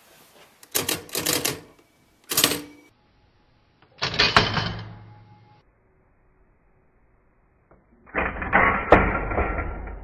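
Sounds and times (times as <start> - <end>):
mechanical calculator clattering: 0.6 - 1.7, 2.3 - 2.8.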